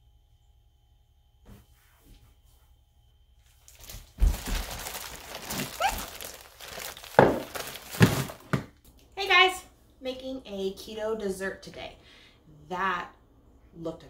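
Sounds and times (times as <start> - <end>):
rustling and crinkling: 3.4 - 8.7.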